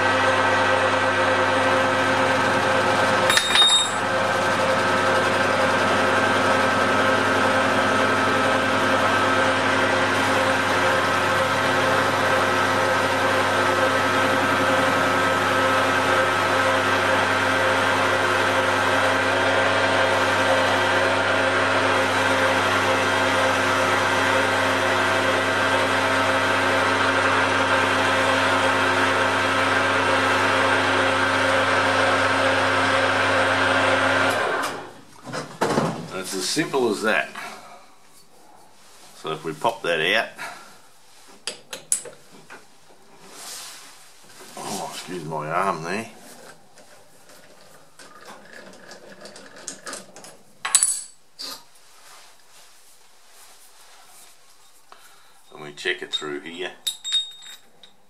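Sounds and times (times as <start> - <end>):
metal lathe humming: 0.0 - 34.9.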